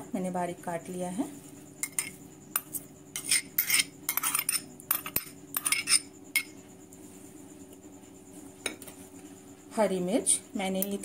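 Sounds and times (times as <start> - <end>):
scraping and clinking on bowl: 1.8 - 6.6.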